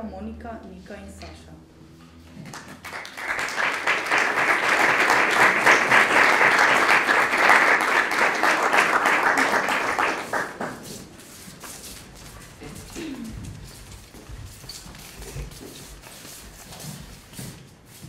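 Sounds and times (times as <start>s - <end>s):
audience applauding: 2.4s - 11.1s.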